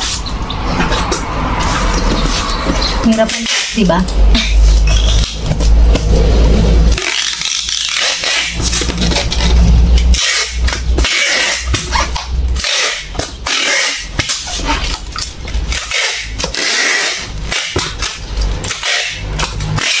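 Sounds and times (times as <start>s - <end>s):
packing tape handled: 6.9s - 20.0s.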